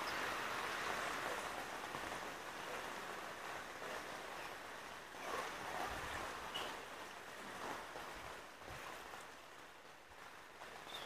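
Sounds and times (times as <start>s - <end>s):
rain falling on wet pavement: 0.0s - 11.0s.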